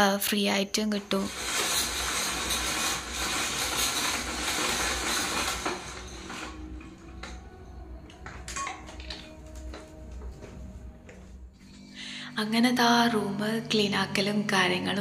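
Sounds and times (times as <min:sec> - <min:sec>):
roller blind cord rattling whir: 0:00.8 - 0:10.8.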